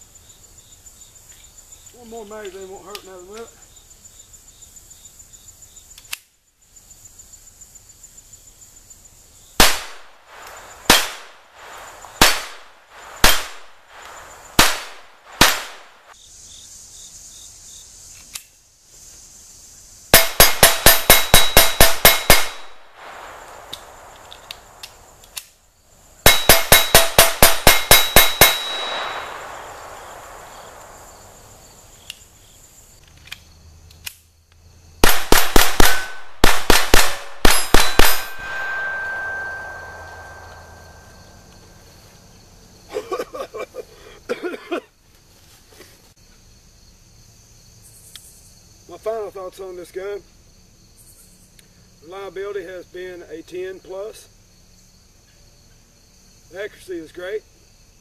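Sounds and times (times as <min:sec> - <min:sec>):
pistol shots: 0:09.6 - 0:16.0, 0:20.2 - 0:25.1, 0:26.2 - 0:31.5, 0:35.0 - 0:41.1
rapid gunfire: 0:10.8 - 0:16.0, 0:20.2 - 0:23.9, 0:26.3 - 0:30.9, 0:35.0 - 0:39.6
steel plate target ringing: 0:20.2 - 0:22.8, 0:26.3 - 0:29.9, 0:35.8 - 0:36.4, 0:37.4 - 0:41.4.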